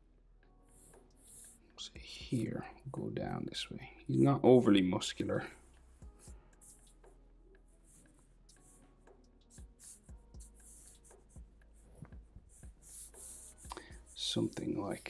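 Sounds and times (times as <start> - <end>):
marker scratching on paper: 0.7 - 1.6, 6.2 - 7.2, 7.8 - 15.0.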